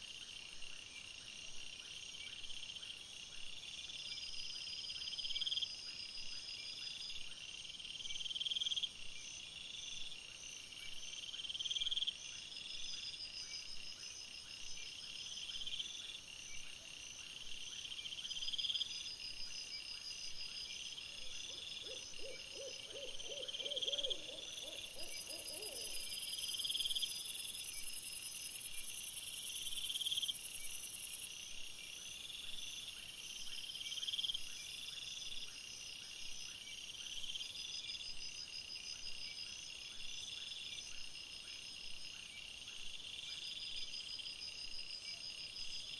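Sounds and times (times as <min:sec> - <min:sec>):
low rapidly pulsed insect call: 0:00.0 - 0:45.9
crickets trilling: 0:21.5 - 0:31.3.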